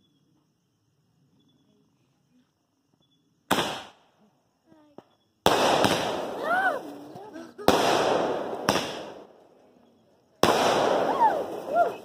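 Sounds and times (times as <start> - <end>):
faint firework crackles: 3.4 - 12.0
loud firework bang: 3.5 - 4.0, 5.5 - 6.9, 7.6 - 9.2, 10.4 - 12.0.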